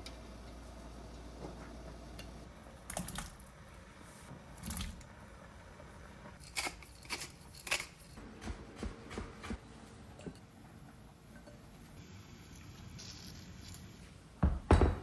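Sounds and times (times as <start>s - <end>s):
pepper mill grinding: 6.4s - 8.2s.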